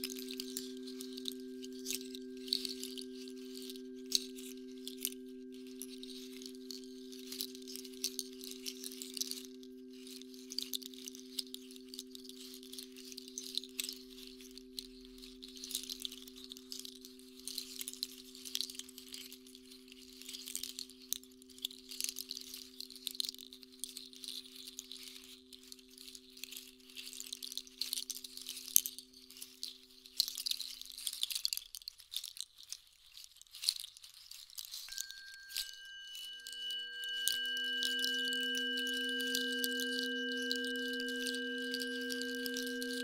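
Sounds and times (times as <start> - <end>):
tuning forks humming: 0.0 - 10.7, 34.9 - 43.0
higher ringing tone: 34.9 - 43.0.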